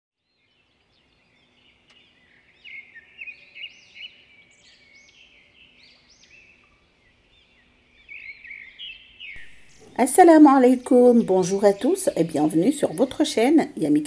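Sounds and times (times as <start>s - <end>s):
small birds chirping: 0.2s - 14.0s.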